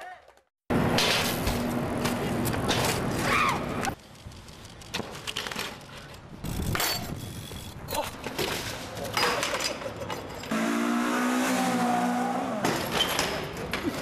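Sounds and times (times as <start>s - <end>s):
bike tyres on concrete: 0.0s - 11.1s.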